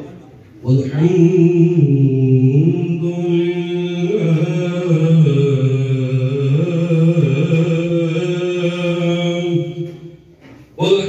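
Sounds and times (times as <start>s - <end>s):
man chanting: 0.6s - 11.0s.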